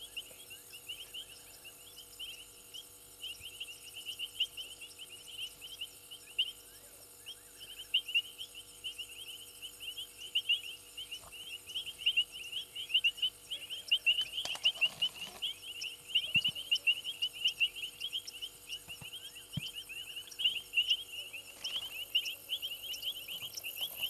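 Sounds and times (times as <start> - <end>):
rapid high-pitched chirping: 0.0 - 24.0
steady low hum: 0.0 - 24.0.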